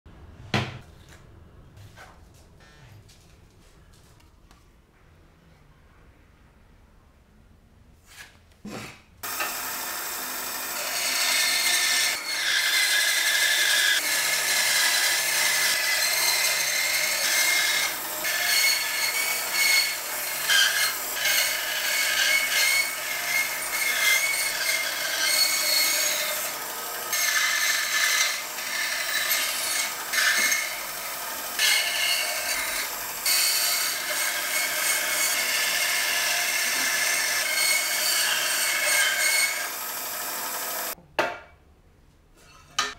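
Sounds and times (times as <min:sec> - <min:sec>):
bandsaw cutting wood: 0:09.2 - 0:41.0.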